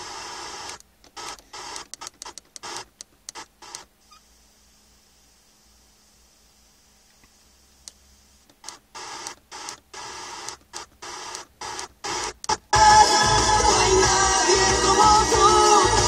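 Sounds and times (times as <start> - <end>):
faint hum: 0.0 - 12.8
radio static hiss: 0.0 - 12.8.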